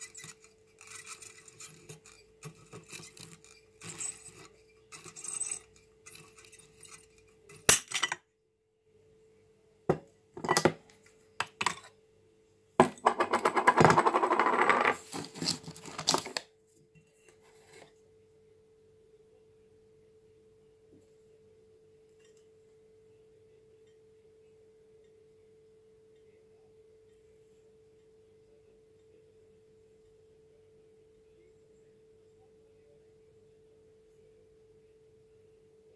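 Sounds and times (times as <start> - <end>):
glass scraping rattle: 0.0 - 8.2
faint steady hum: 0.0 - 35.9.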